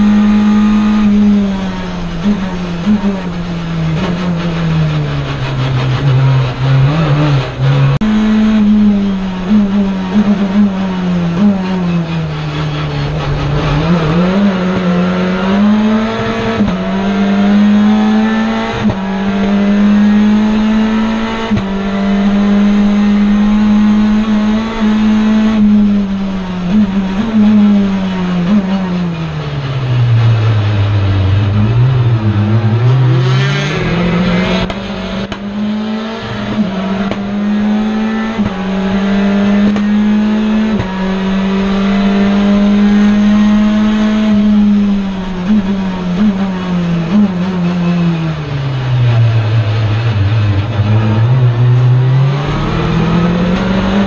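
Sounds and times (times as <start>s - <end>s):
racing car engine in cabin: 0.0s - 54.0s.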